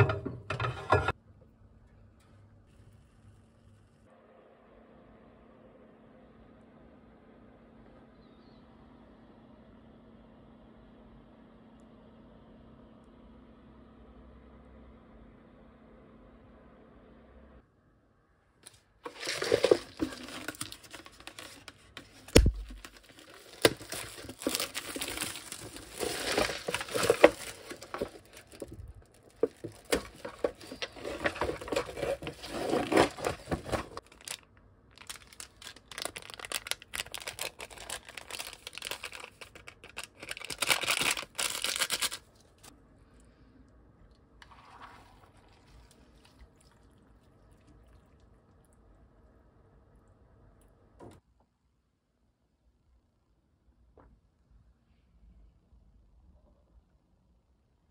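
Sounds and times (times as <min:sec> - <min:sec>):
paper lid tearing: 0:19.0 - 0:28.7, 0:29.4 - 0:34.4
plastic wrapping crinkling and tearing: 0:19.0 - 0:42.7.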